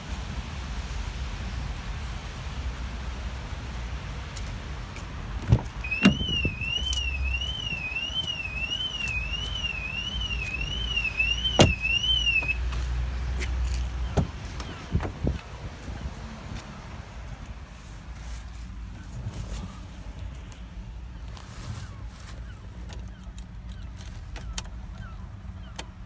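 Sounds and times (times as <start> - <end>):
car door knocks and clunks: 5.4 - 6.6, 11.6 - 11.9, 14.1 - 15.4
electronic warbling alarm: 5.9 - 12.6.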